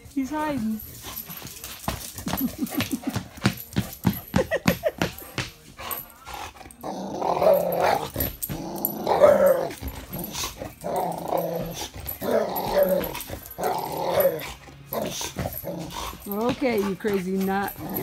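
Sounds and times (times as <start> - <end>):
dog growling and barking: 6.3 - 18.0.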